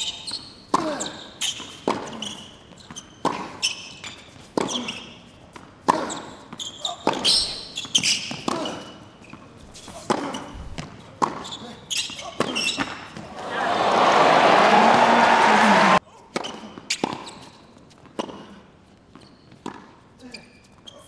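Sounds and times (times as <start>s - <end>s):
racquets striking tennis ball: 2.9s - 9.4s, 10.0s - 11.5s.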